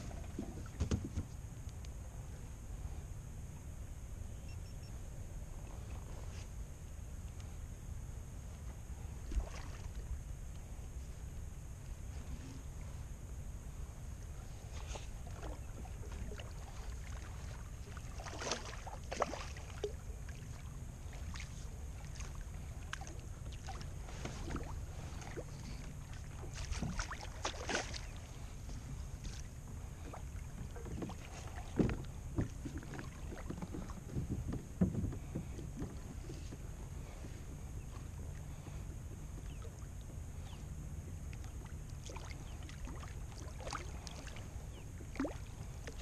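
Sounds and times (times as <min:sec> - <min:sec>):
wind rumble on microphone: 0:00.0 - 0:46.0
fish splashing in water: 0:18.0 - 0:20.0, 0:26.3 - 0:28.2.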